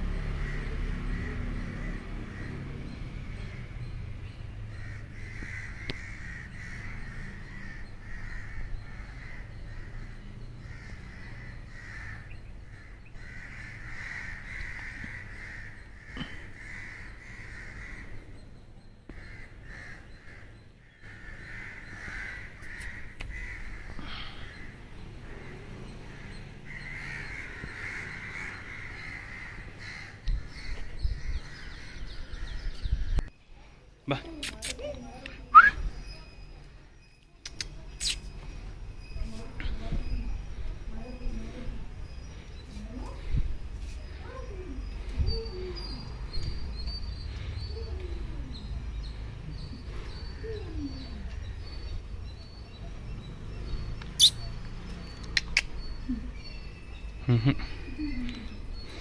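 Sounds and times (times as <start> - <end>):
crows cawing: 0.2 - 2.7, 4.7 - 18.3, 19.1 - 33.1.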